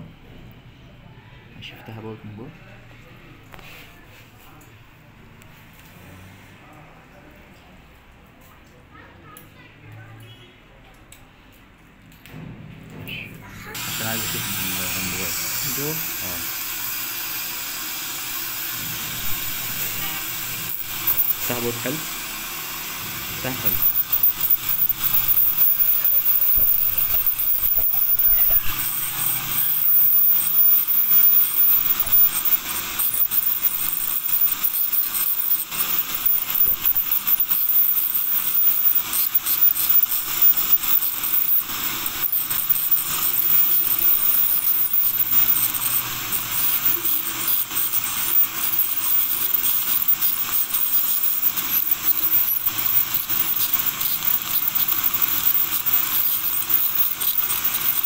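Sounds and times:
dental scaler hiss and whine: 13.5s - 58.0s.

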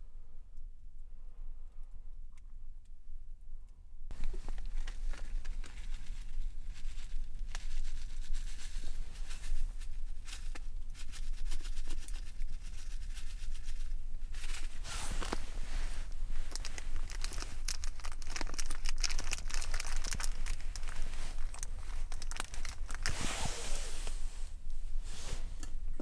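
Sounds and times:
dry tea leaves falling into kettle: 4.1s - 23.4s
foil packet crinkling: 4.2s - 23.2s.

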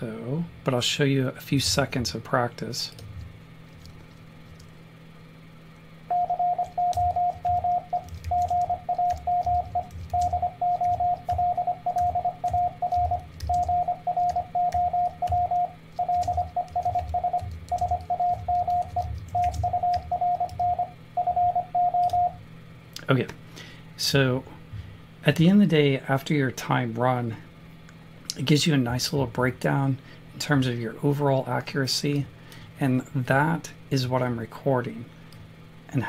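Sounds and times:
morse code tone: 6.1s - 22.4s.

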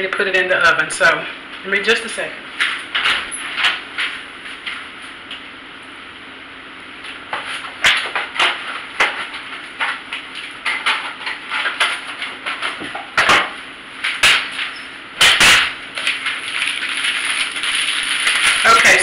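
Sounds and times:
kitchen knocks and clatters: 10.6s - 16.4s.

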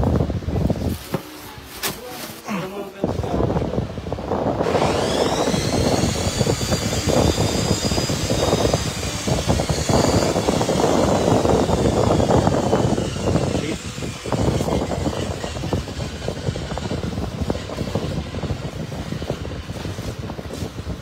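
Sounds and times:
plastic wrapping crinkling: 0.7s - 2.7s
high whine: 3.4s - 21.0s.

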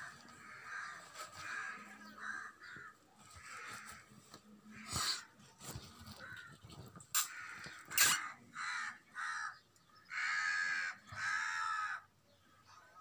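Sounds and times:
crow cawing: 0.0s - 5.2s, 7.2s - 12.1s.

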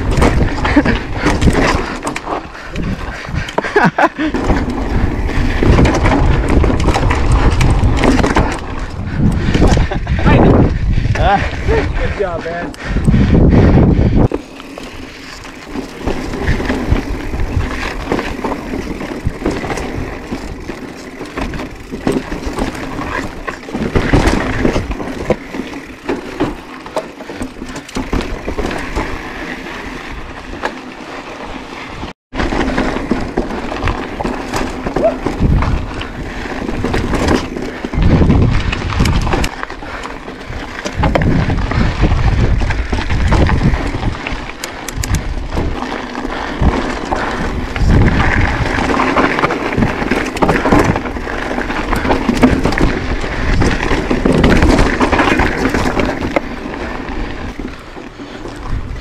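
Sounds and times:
bike knocking and rattling over rock: 0.0s - 11.5s, 13.0s - 59.0s
wind buffeting microphone: 0.0s - 26.0s, 33.7s - 57.8s, 58.5s - 59.0s
bike tyre noise: 0.0s - 59.0s.

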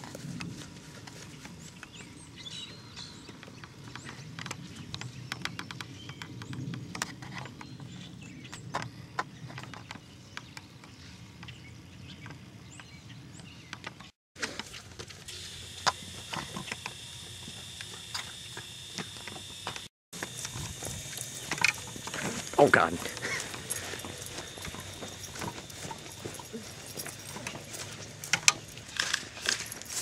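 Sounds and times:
footsteps through grass: 20.2s - 30.0s.

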